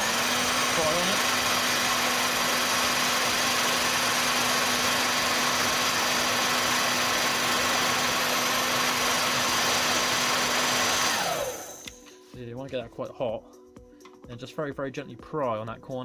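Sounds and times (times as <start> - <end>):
heat gun blowing air: 0.0 - 12.2.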